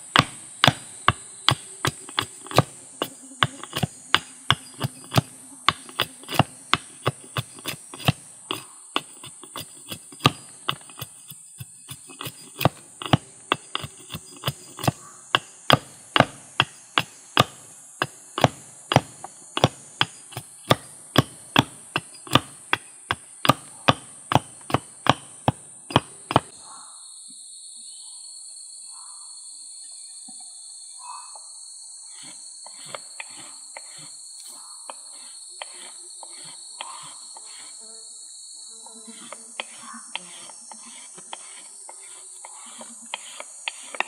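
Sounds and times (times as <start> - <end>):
hatchet chopping wood: 0.0 - 26.5
insects droning: 0.0 - 44.0.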